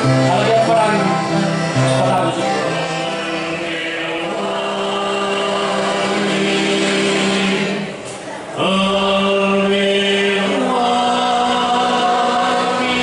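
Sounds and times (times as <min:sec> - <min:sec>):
live band playing: 0:00.0 - 0:04.0
voices singing together: 0:02.1 - 0:13.0.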